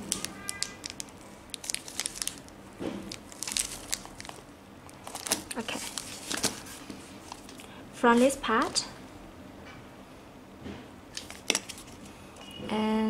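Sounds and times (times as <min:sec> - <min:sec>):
plastic wrap crinkling: 0:00.0 - 0:07.7.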